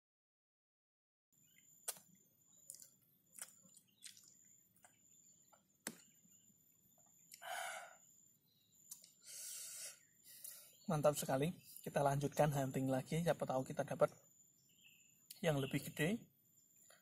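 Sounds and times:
man eating mouth clicks: 0:01.5 - 0:06.2, 0:08.8 - 0:09.3, 0:10.3 - 0:10.6
short hissing sounds: 0:09.1 - 0:10.7.

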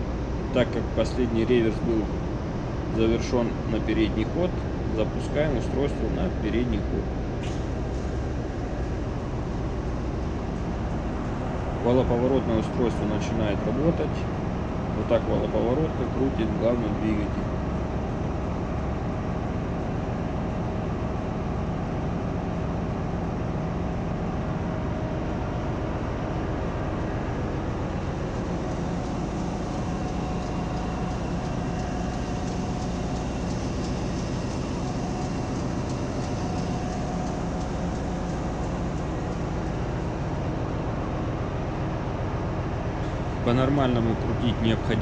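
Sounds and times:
diesel generators humming: 0:00.0 - 0:45.0
turning gear machinery noise: 0:25.5 - 0:45.0.

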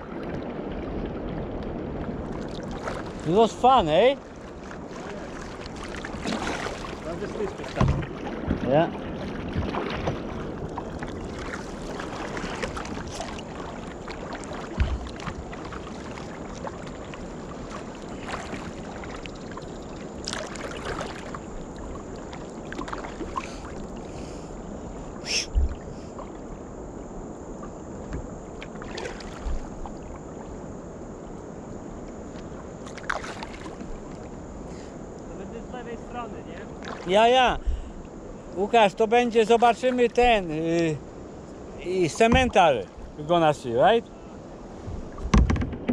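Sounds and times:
river water washing along hull: 0:00.0 - 0:45.9
brief sharp boat sounds: 0:25.2 - 0:26.2.

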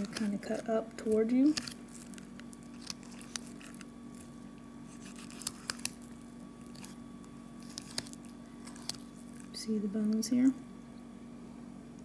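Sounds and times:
knife cutting and scraping meat: 0:00.0 - 0:09.5
wet squishing: 0:00.0 - 0:10.2
steady low hum: 0:00.0 - 0:12.0.

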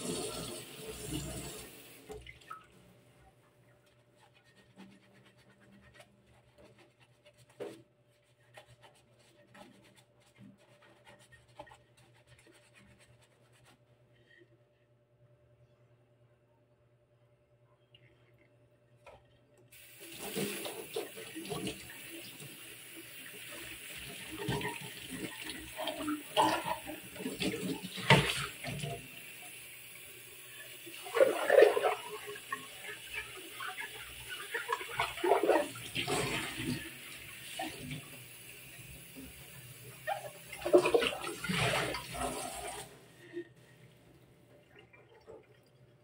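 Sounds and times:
tap water running into sink: 0:00.0 - 0:02.8, 0:19.7 - 0:42.9.

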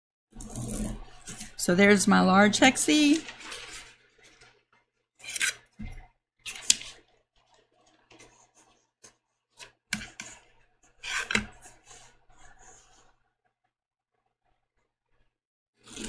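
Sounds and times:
paper rustling and sliding: 0:02.9 - 0:04.6, 0:06.5 - 0:13.1.

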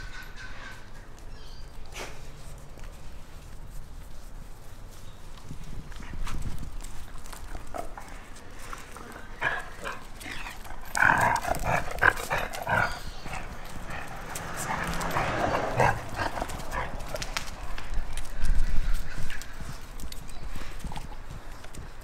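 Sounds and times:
puppies yapping: 0:09.3 - 0:17.9.

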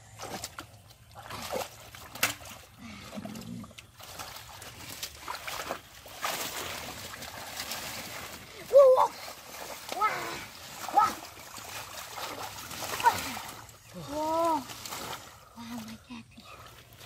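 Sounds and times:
splashing in shallow water: 0:00.0 - 0:17.0
sharp wet slaps: 0:00.1 - 0:02.7.

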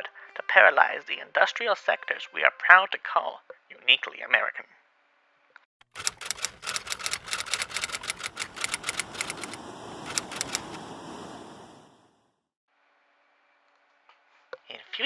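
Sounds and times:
typewriter keys clacking: 0:05.9 - 0:10.8
background hiss: 0:06.0 - 0:12.2.

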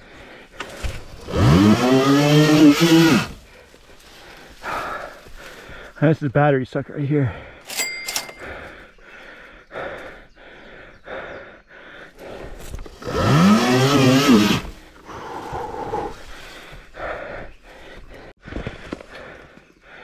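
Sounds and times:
man breathing hard: 0:00.0 - 0:01.3, 0:03.3 - 0:06.0, 0:07.1 - 0:13.2, 0:14.6 - 0:20.0.

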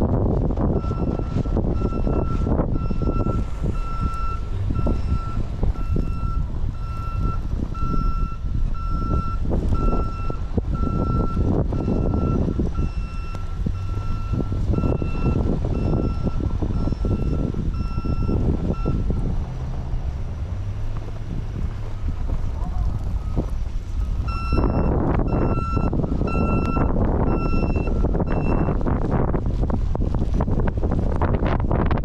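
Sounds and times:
continuous low rumble: 0:00.0 - 0:32.0
reversing alarm beeps: 0:00.8 - 0:19.2, 0:23.2 - 0:28.8.

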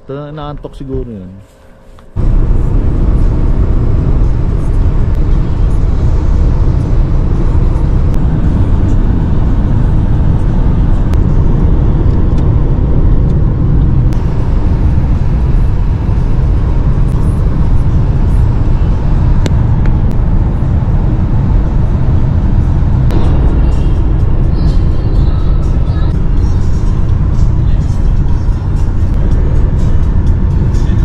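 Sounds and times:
car road noise rumble: 0:00.0 - 0:31.0.

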